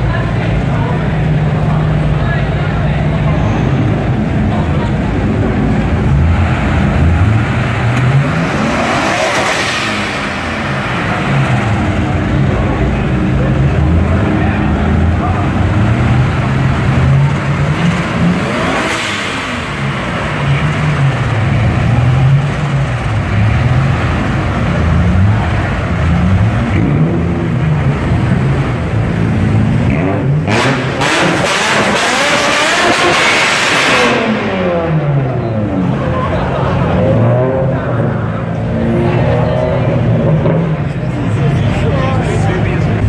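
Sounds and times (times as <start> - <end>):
car engine revving: 0.0 - 43.0.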